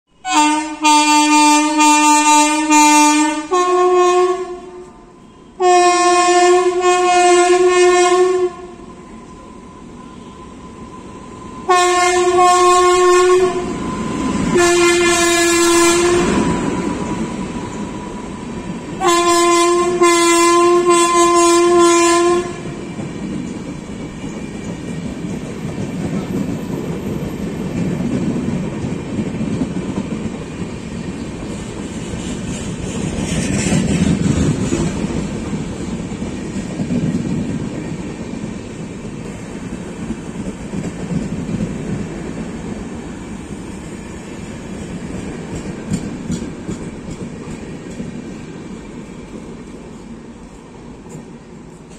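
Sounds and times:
locomotive air horn blasts: 0.2s - 8.8s, 11.6s - 13.8s, 14.5s - 16.6s, 19.0s - 22.8s
train wheels clickety-clack: 11.5s - 51.9s.

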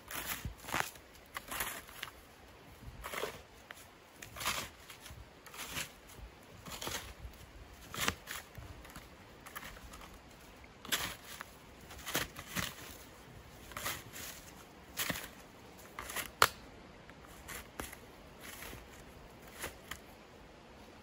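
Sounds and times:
shovel scooping snow: 2.8s - 8.6s, 10.8s - 16.3s.

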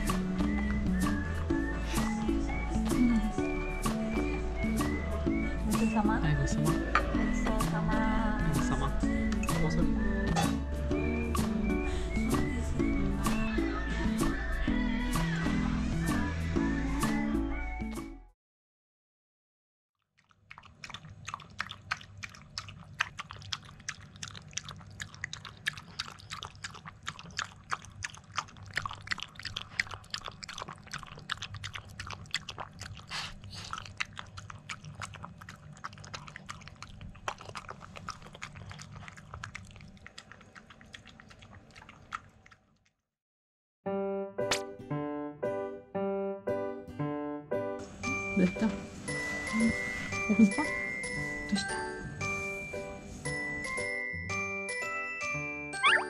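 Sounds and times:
dog chewing wet food: 20.2s - 43.0s.

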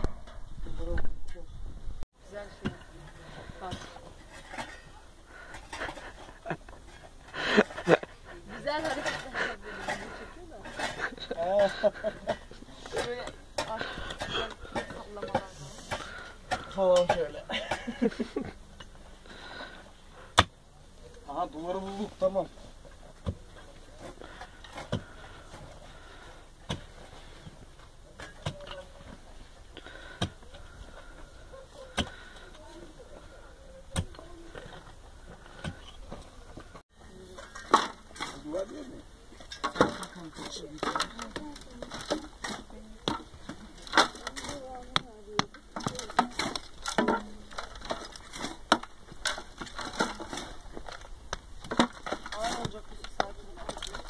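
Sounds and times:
dirt and stones falling: 33.9s - 54.0s.

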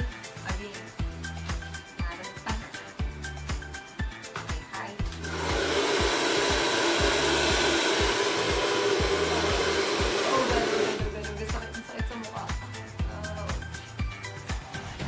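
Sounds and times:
hair dryer blowing air: 5.1s - 11.3s.

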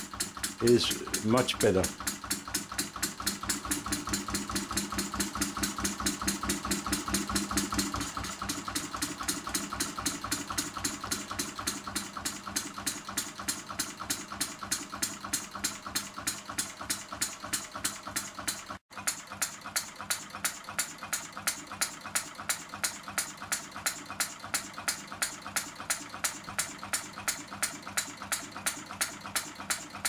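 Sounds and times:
diesel engine running: 0.0s - 18.7s.

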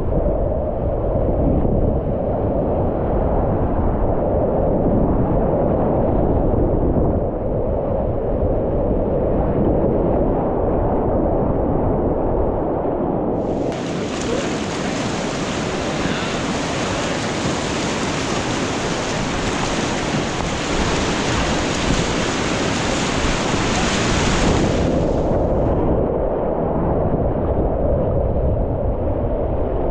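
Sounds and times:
whitewater rapids rushing: 13.4s - 25.3s.

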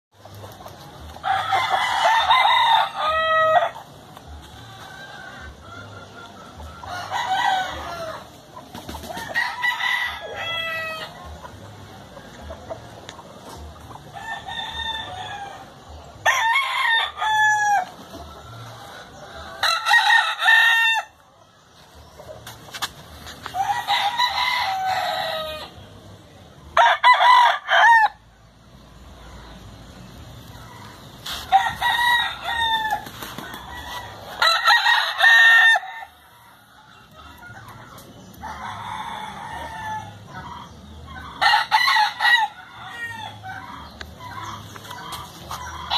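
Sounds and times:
roosters crowing: 0.2s - 21.2s, 22.7s - 25.9s, 26.7s - 28.5s, 29.2s - 45.9s.

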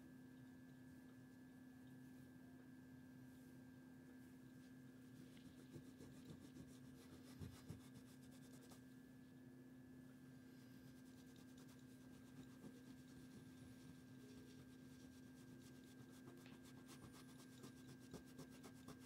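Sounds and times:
electrical hum: 0.0s - 19.0s
faint rubbing and light taps: 4.6s - 8.9s.

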